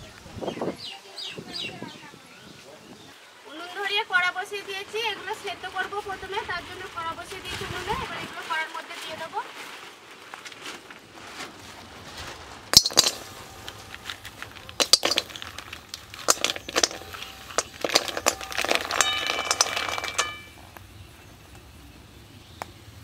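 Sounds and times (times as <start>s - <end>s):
metal pan ringing: 12.8s - 20.6s
shells clattering into metal pan: 12.8s - 20.6s.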